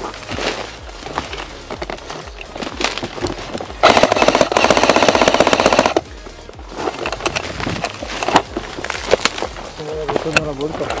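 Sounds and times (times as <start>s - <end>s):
airsoft rifle full-auto burst: 3.8s - 6.0s.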